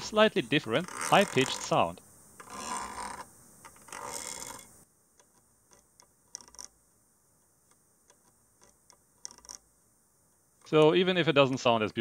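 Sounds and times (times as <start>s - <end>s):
tweezers scraping chip legs: 0.0s - 6.8s, 7.7s - 9.6s.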